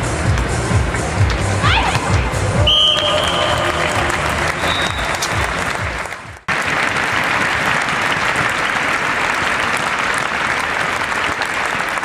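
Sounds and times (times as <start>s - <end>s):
crowd applauding: 2.6s - 12.0s.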